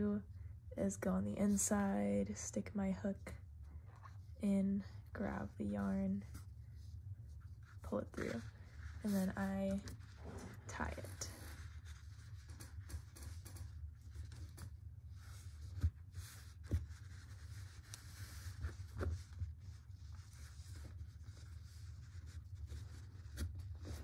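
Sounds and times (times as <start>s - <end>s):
low steady hum: 0.0s - 24.0s
yarn rustling and scratching: 6.2s - 24.0s.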